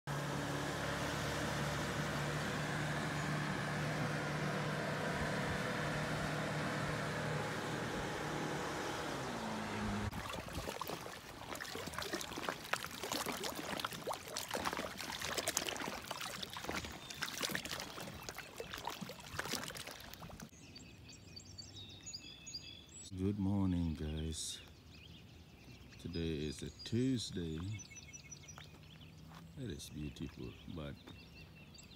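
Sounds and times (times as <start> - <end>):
motorboat engine droning: 0.1 - 20.5
water trickling and splashing: 10.1 - 20.6, 27.5 - 30.4.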